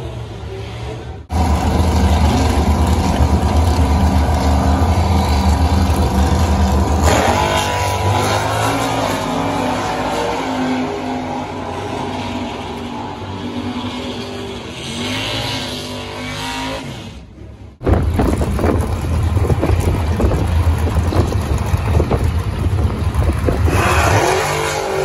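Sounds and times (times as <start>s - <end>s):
racing car engines rumbling: 0.0s - 25.0s
cars launching at full throttle: 1.2s - 12.6s, 23.4s - 25.0s.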